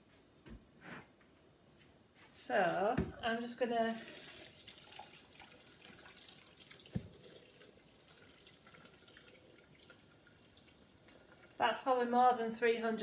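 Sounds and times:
hot water pouring into metal jug: 0:03.8 - 0:13.0.

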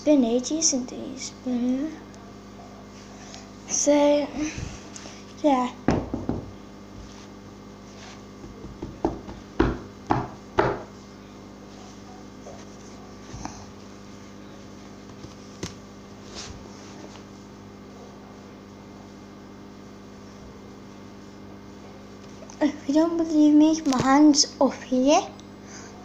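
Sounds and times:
steady low hum: 0:00.0 - 0:26.0
dull knocks: 0:05.9 - 0:06.5, 0:08.4 - 0:10.9.

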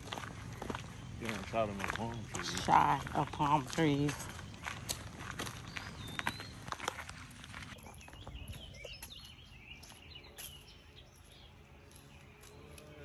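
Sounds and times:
bird chirps: 0:03.8 - 0:07.1, 0:07.7 - 0:13.0.

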